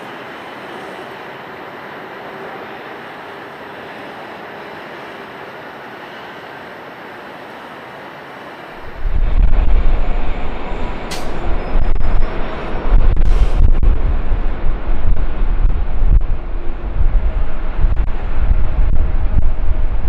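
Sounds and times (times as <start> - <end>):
jet engines rumbling: 7.5 - 20.0.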